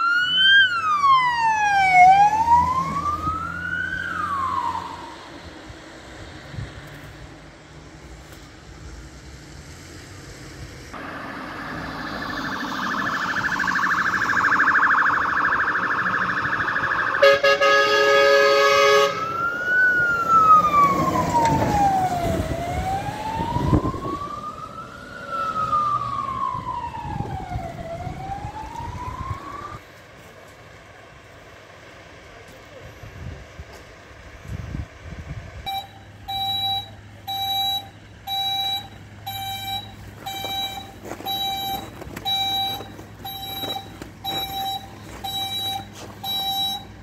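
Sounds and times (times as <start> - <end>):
siren warbling and wailing: 0.0 - 5.3, 11.0 - 17.4, 19.2 - 29.8
air horn blast: 17.2 - 19.2.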